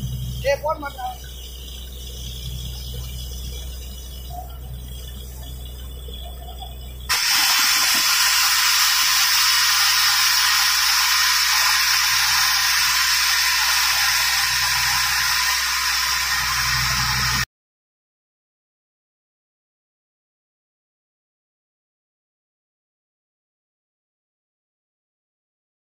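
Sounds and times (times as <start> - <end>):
water and slurry blasting from borewell: 7.1 - 17.4.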